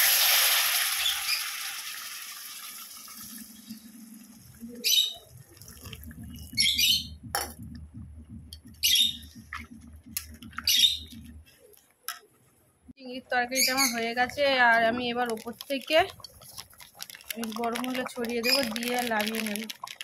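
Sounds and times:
water sizzling in hot oil: 0.0 - 3.8, 15.4 - 20.0
water pouring: 0.0 - 6.7, 14.8 - 20.0
curry bubbling: 0.2 - 7.7, 13.3 - 20.0
bird chirping: 6.3 - 7.3, 8.7 - 9.4, 10.4 - 11.4, 13.5 - 14.2.

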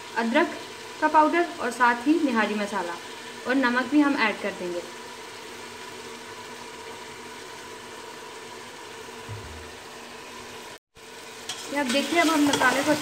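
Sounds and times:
pressure cooker hissing: 0.0 - 13.0
soft low thump: 9.3 - 9.8.

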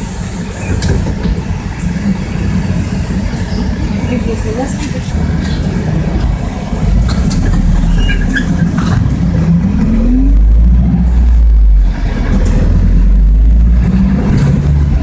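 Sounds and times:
bus diesel engine droning: 0.0 - 15.0.

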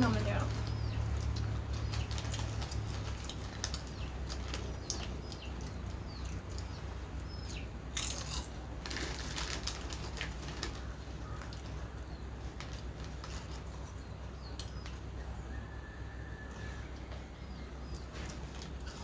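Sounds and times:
foil packets crinkling: 0.0 - 6.1, 8.0 - 13.9
chips being crunched: 8.0 - 11.6.

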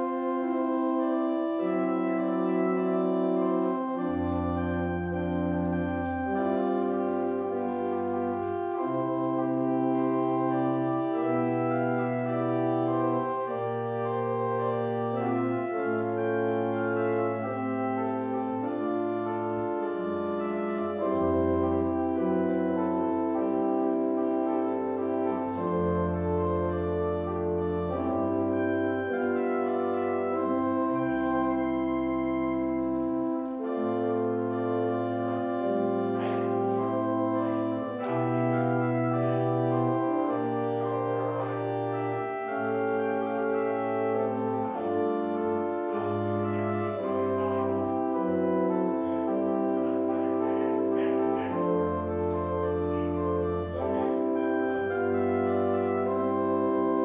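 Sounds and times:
organ chords: 0.0 - 57.0.

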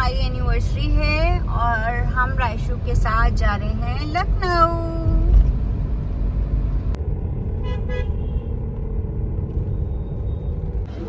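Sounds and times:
car road noise rumble: 0.0 - 11.0
car horn toots: 7.6 - 8.5.

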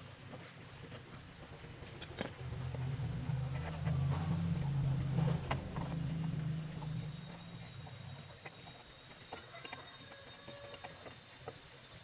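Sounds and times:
steady low hum: 0.0 - 9.4.

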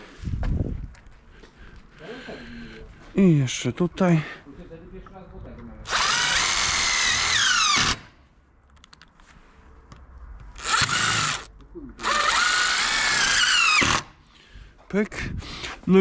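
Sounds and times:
power drill driving screws: 5.8 - 8.1, 10.6 - 14.1.

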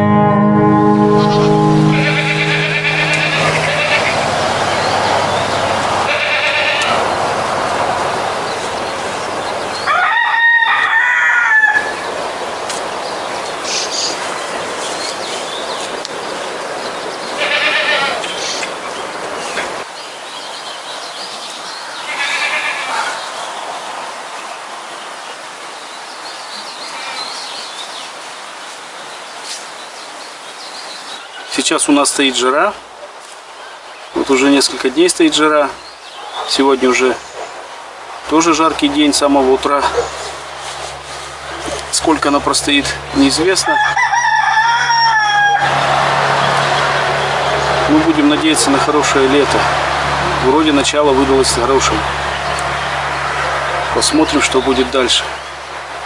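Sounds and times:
livestock bleating: 1.7 - 4.3, 6.1 - 6.9, 17.4 - 18.2, 22.1 - 22.9
rooster crowing: 9.8 - 12.0, 43.6 - 46.5.

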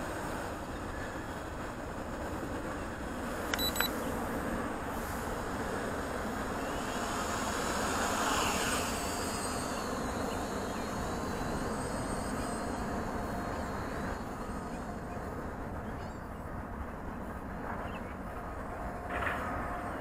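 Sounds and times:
short electronic beeps: 3.5 - 4.0.

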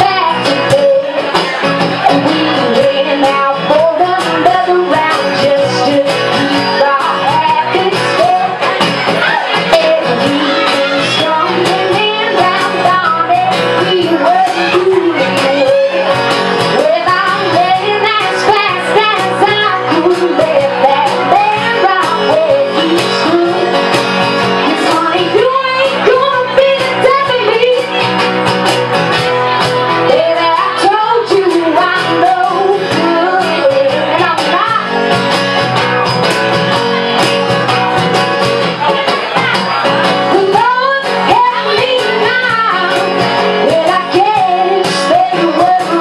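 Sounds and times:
woman singing into a microphone: 0.0 - 35.3, 38.9 - 46.0
acoustic guitar: 0.0 - 46.0.

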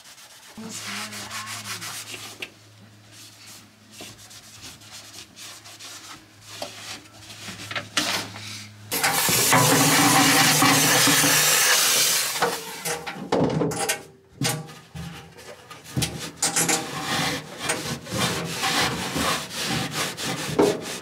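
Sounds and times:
cloth towel rubbing dashboard: 0.0 - 2.4
steam cleaner jet hissing: 8.9 - 12.4.

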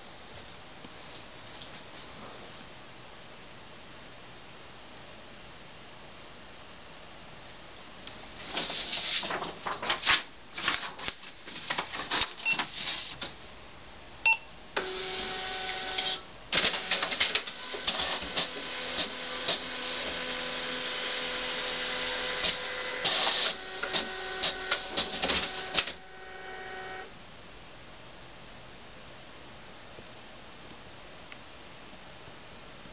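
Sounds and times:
printer clicking and rattling: 14.8 - 26.1
printer motor whine: 14.8 - 27.1.

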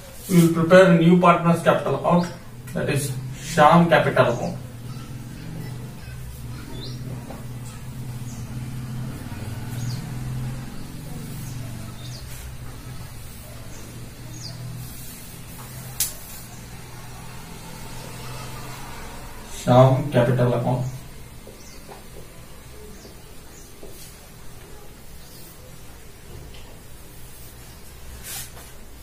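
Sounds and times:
steady low hum: 0.0 - 26.2.

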